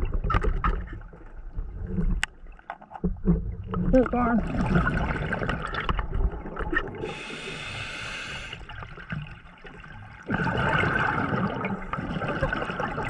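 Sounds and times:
exhaled bubbles rushing: 3.9s - 7.5s, 8.6s - 13.0s
scuba regulator inhalation hiss: 7.0s - 8.6s.

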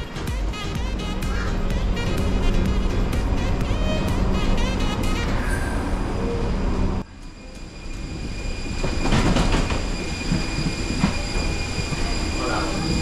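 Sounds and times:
music: 0.0s - 5.8s
moving vehicle rumble: 0.0s - 13.0s.

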